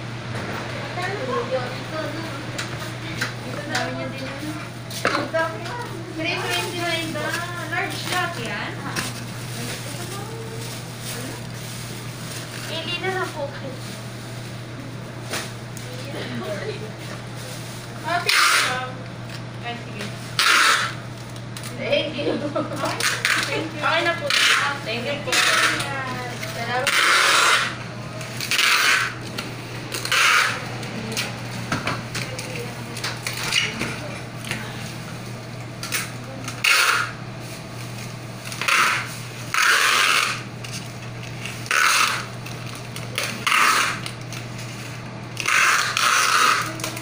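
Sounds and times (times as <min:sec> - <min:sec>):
steady low hum: 0:00.0 - 0:47.0
packing tape pulled off roll: 0:18.2 - 0:18.8, 0:20.4 - 0:21.7, 0:25.3 - 0:27.7, 0:28.4 - 0:29.2, 0:30.0 - 0:30.6, 0:35.8 - 0:37.2, 0:38.4 - 0:47.0.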